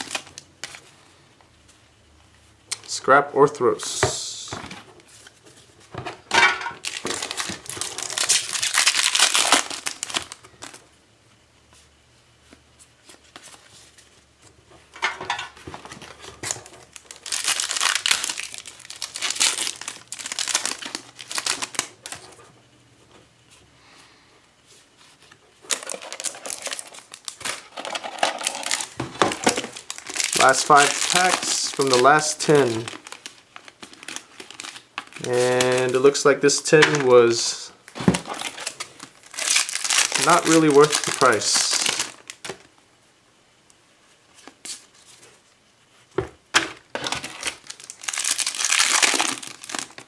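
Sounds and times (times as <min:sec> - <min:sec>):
foil wrappers crinkling and tearing: 0:00.0 - 0:00.8, 0:06.7 - 0:10.8, 0:15.8 - 0:22.4, 0:25.7 - 0:42.7, 0:46.9 - 0:50.0.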